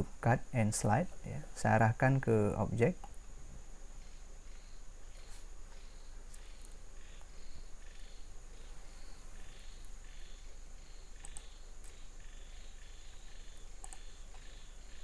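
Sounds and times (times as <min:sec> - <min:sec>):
mains hum: 0:00.0 - 0:15.0
soft insect-like chirps: 0:00.2 - 0:15.0
faint clicks: 0:11.2 - 0:12.0, 0:13.8 - 0:14.4.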